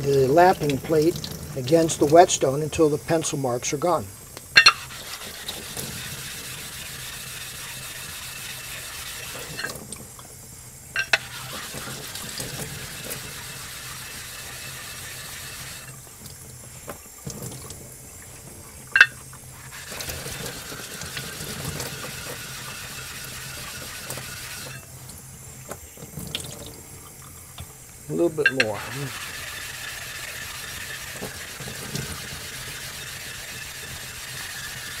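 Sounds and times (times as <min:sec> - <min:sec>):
tap water splashing into sink: 0:00.0 - 0:02.3, 0:15.5 - 0:27.8
lapping plate scrubbing wet whetstone: 0:04.6 - 0:10.2, 0:11.0 - 0:24.8, 0:28.2 - 0:35.0.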